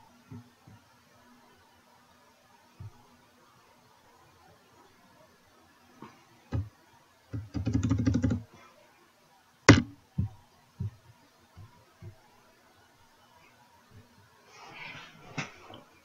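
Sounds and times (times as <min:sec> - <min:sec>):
computer keyboard taps: 0:07.4 - 0:08.4.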